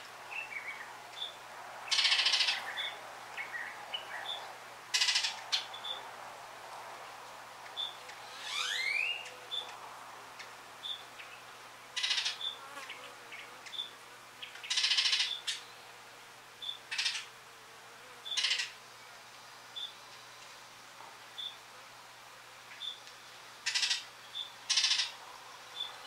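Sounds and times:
harsh buzzy bird chatters: 1.9 - 3.0, 4.9 - 5.7, 12.0 - 13.9, 14.6 - 15.6, 16.6 - 17.3, 18.3 - 18.8, 23.6 - 25.2
oriole rising whistle: 8.4 - 9.2.

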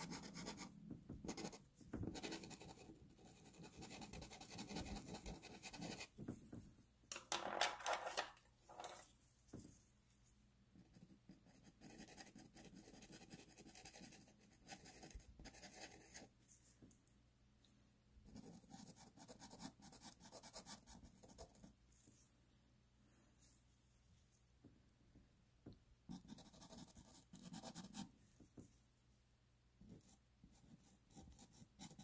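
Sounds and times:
pencil scratching on paper: 0.0 - 6.1, 10.8 - 16.3, 18.3 - 21.8, 26.1 - 28.1, 29.9 - 32.0.

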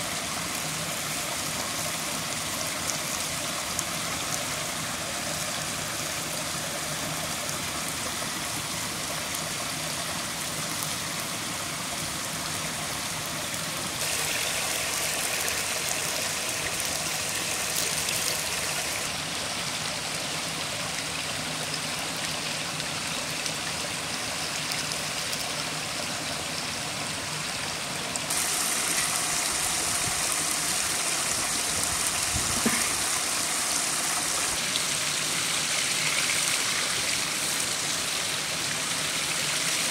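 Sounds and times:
water rushing over rocks: 0.0 - 39.9.

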